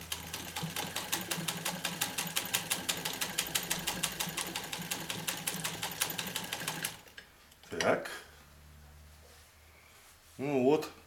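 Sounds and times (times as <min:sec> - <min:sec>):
sewing machine stitching: 0:00.0 - 0:07.1.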